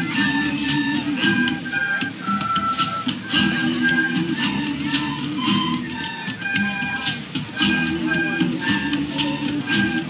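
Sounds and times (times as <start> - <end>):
accompaniment with steady beat: 0.0 - 10.0
recorder melody: 0.0 - 10.0.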